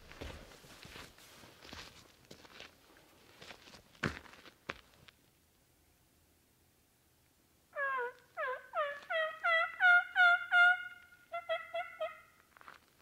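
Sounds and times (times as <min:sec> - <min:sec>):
turkey call hen yelps: 0:07.7 - 0:12.4.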